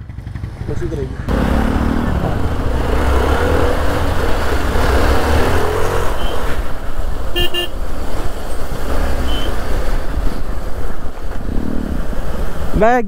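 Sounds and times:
motorcycle rumbling: 0.0 - 13.0
vehicle horn toots: 7.3 - 7.8, 9.2 - 9.6.

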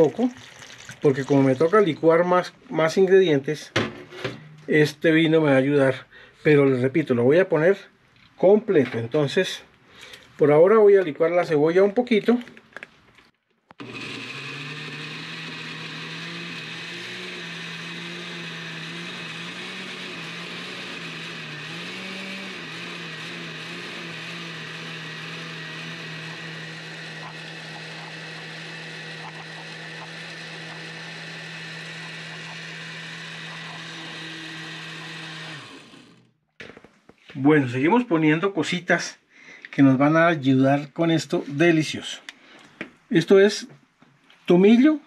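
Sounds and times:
electric blender running: 13.8 - 36.4.

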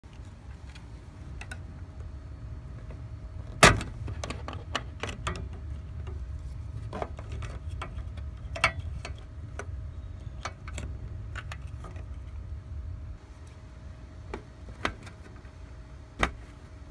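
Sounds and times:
low steady rumble: 0.0 - 16.9.

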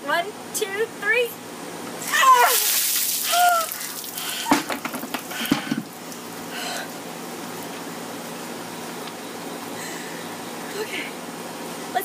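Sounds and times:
water dripping off clothing: 2.4 - 6.2
sharp knocks and clatters: 4.5 - 5.9.

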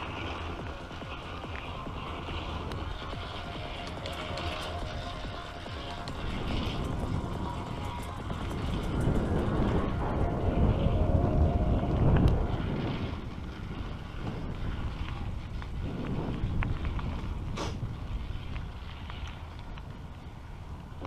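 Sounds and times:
bicycle tyres rumbling on asphalt: 0.0 - 21.0
wind buffeting microphone: 0.0 - 21.0.

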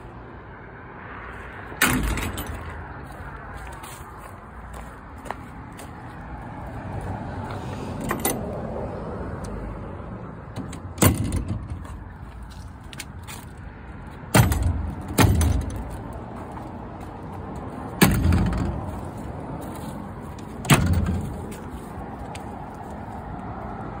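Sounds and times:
wooden doors banging shut: 10.6 - 11.9, 14.3 - 15.9, 18.0 - 18.9, 20.6 - 21.4.

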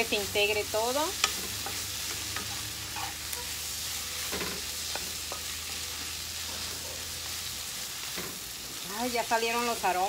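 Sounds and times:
potatoes sizzling in a frying pan: 0.0 - 10.0
spatula scraping and tapping pan: 1.2 - 3.5.

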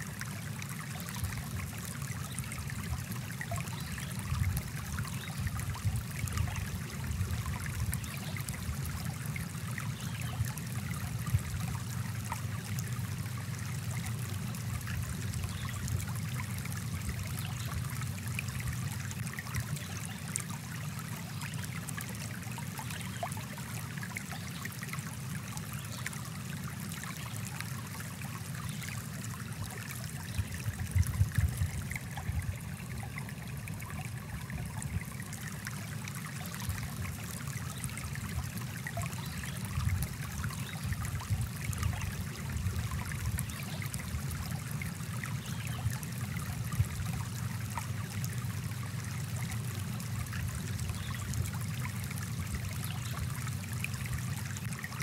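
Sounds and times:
stream flowing: 0.0 - 55.0.

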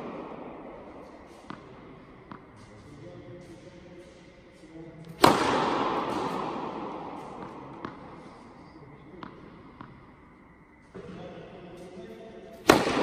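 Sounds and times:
racket striking ball: 0.0 - 2.6, 5.1 - 8.2, 9.2 - 10.0, 12.6 - 13.0.

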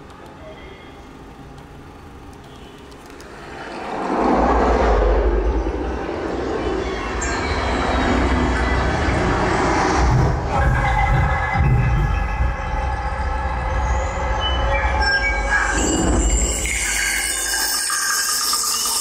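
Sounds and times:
rushing rumble with deep bass: 3.5 - 13.0.

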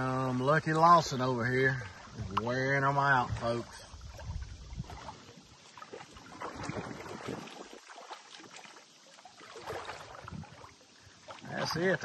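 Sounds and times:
water sloshing: 0.0 - 12.0
fish splashing at the surface: 3.3 - 12.0.

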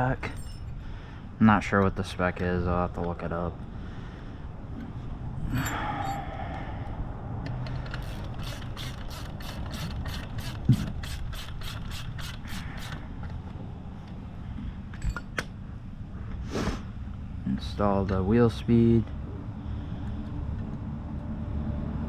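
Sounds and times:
ratchet wrench clicking: 7.7 - 13.0.

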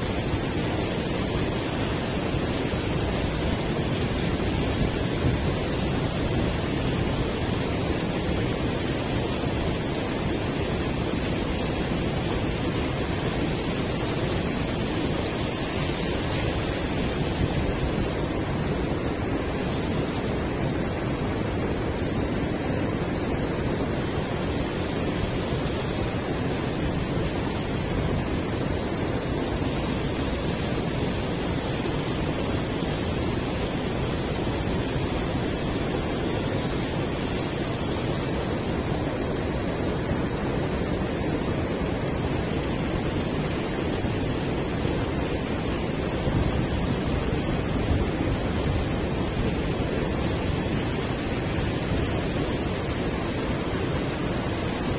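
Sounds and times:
water pouring over a weir: 0.0 - 20.8, 24.0 - 39.0.

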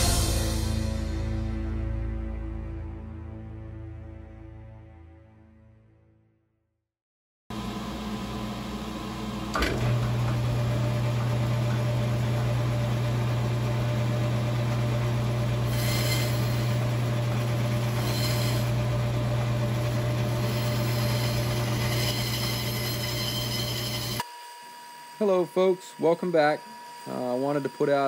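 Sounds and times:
bandsaw motor humming: 7.5 - 28.0
saw blade rasping through wood: 15.6 - 24.2.

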